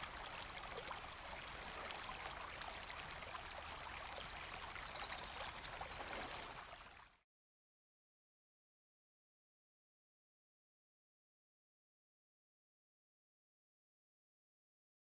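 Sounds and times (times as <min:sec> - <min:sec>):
stream babbling over rocks: 0:00.0 - 0:06.7.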